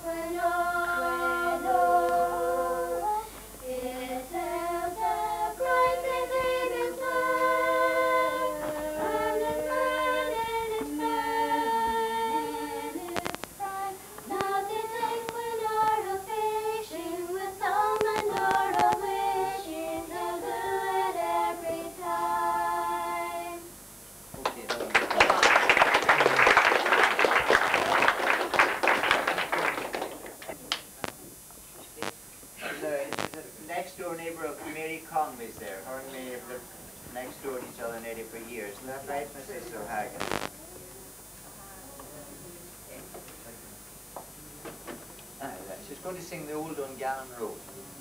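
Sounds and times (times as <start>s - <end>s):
woman singing slow melody: 0.0s - 23.7s.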